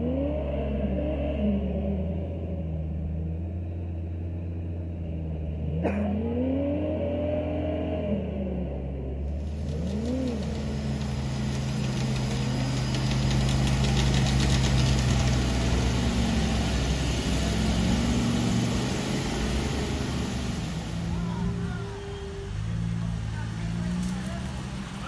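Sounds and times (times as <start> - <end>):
truck engine revving: 0.0 - 25.0.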